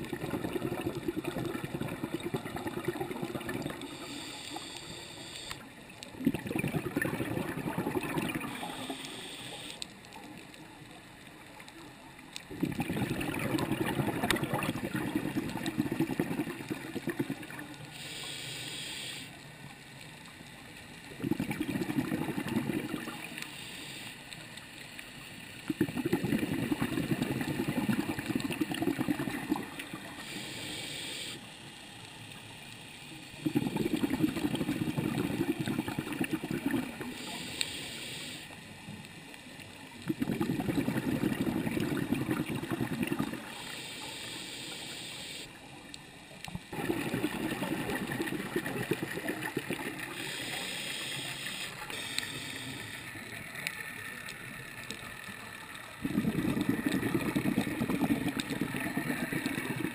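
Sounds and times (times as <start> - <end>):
exhaust bubbles bursting underwater: 0.0 - 4.0, 6.2 - 8.6, 12.5 - 17.6, 21.1 - 23.3, 25.7 - 30.1, 33.4 - 37.1, 40.0 - 43.5, 46.7 - 50.2, 56.0 - 59.9
regulator hissing on inhale: 3.7 - 5.8, 8.4 - 9.9, 17.8 - 19.4, 23.0 - 24.6, 29.8 - 32.1, 37.0 - 38.6, 43.3 - 45.6, 50.0 - 53.4.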